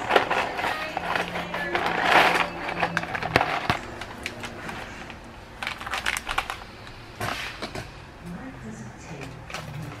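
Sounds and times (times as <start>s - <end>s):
dry pasta clicking: 0.0s - 7.0s
crackles: 0.0s - 7.6s
packaging crinkling: 0.0s - 7.6s.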